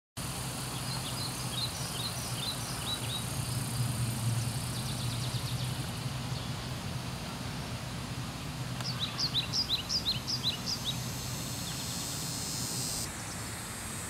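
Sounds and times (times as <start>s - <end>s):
steady low hum: 0.2s - 14.0s
small bird chirping: 0.7s - 3.7s, 8.8s - 13.1s.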